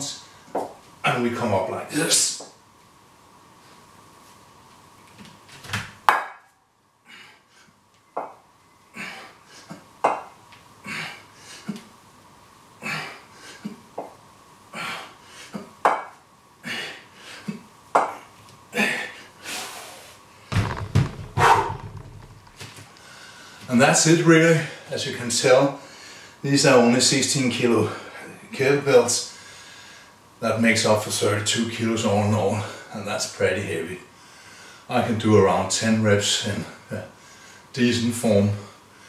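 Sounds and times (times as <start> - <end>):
kettlebells knocking down: 20.5 - 22.6.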